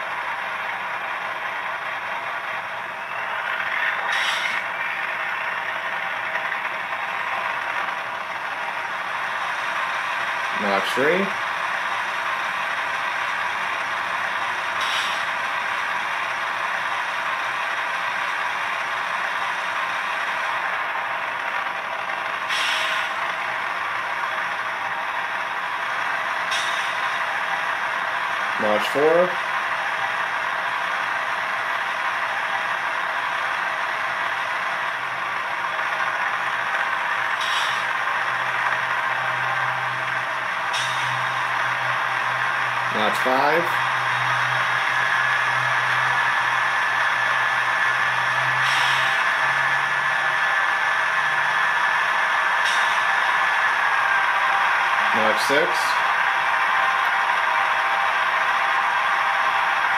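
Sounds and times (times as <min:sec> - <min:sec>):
diesel engine through small speaker: 0:00.0 - 0:59.9
air compressor running: 0:03.5 - 0:59.9
short air hiss: 0:04.1 - 0:04.6, 0:14.8 - 0:15.3, 0:22.5 - 0:23.1.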